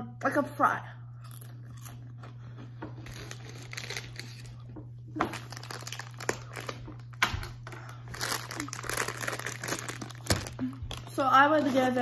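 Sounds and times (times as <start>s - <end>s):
steady low hum: 0.0s - 12.0s
plastic snack bag crinkling: 3.0s - 12.0s.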